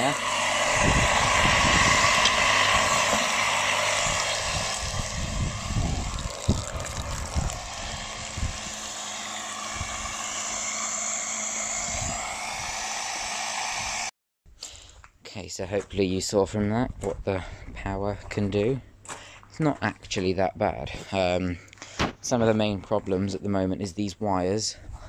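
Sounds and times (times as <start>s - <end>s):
drill motor running fast: 0.0s - 14.1s.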